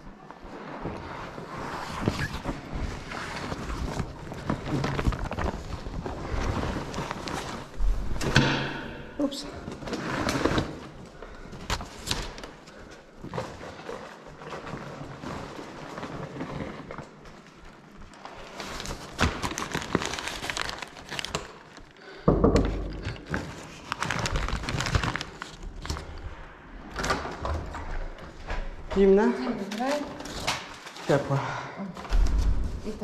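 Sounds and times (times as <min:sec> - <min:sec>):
fabric rustling: 0:00.0 - 0:08.2.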